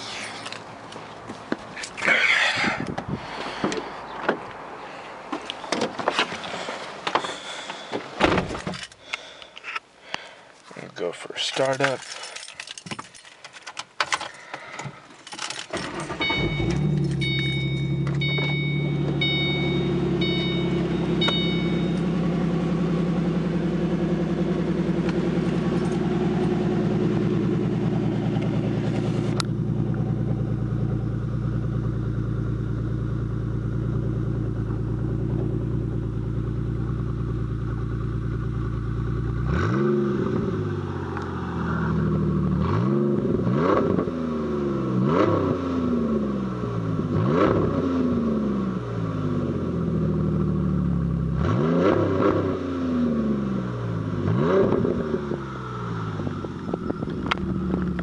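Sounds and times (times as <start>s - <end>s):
car engine idling and revving: 14.8s - 58.0s.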